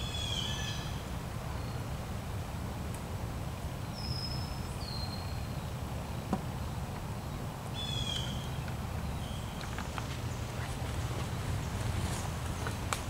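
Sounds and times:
birds whistling: 7.8s - 12.9s.

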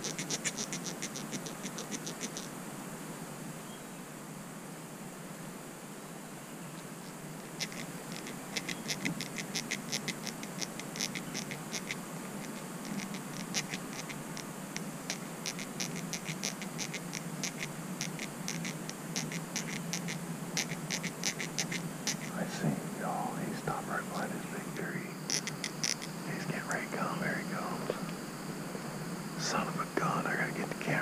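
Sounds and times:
squirrel gnawing nut: 0.0s - 2.5s, 7.4s - 22.6s, 25.2s - 26.2s.

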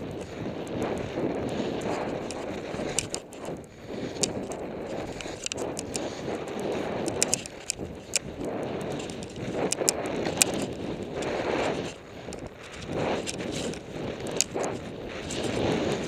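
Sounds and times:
skis scraping over snow: 0.0s - 16.0s
sharp clicks: 1.8s - 15.6s.

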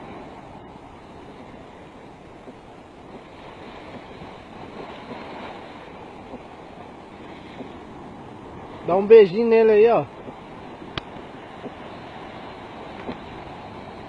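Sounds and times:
rushing water: 0.0s - 14.0s
wind: 0.0s - 14.0s.

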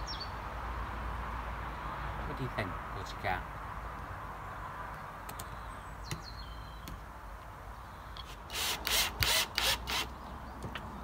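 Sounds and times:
drill rasping into wood: 8.3s - 10.1s
drill knocking on wood: 8.5s - 10.1s.

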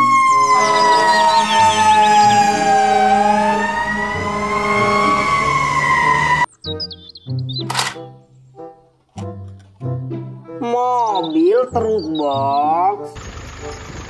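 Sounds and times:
fire engine siren wailing: 0.0s - 6.5s.

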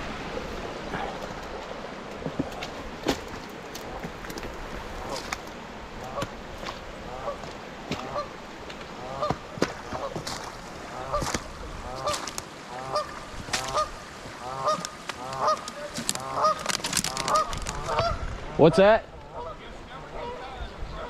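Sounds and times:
geese honking: 7.0s - 10.2s, 10.9s - 21.0s.

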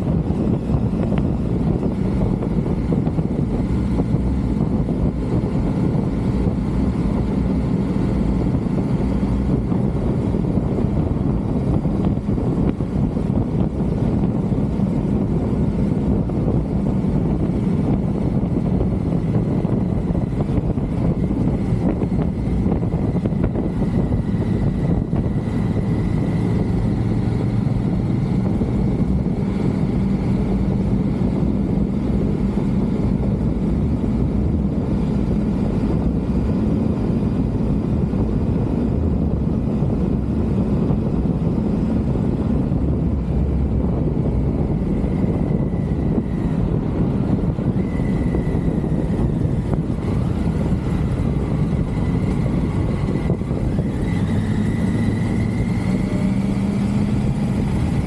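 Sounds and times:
motorcycle engine hum: 0.0s - 58.0s
wind noise on microphone: 0.0s - 58.0s.

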